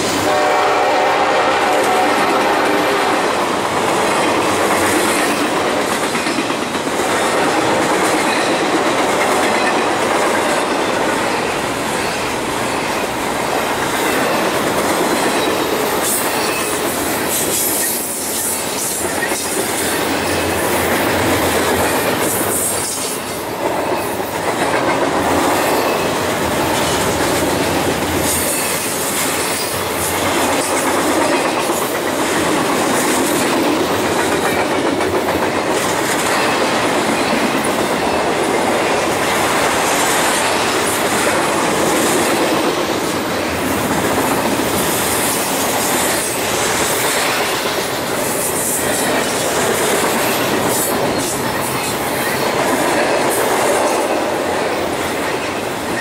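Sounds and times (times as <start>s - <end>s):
steel wheels running on rails: 0.0s - 56.0s
sharp clacks and squeals: 15.2s - 23.3s.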